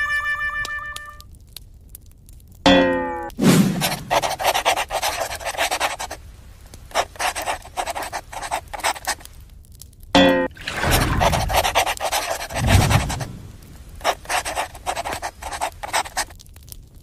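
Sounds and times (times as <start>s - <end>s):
short chime-like tone: 0.0s - 1.2s.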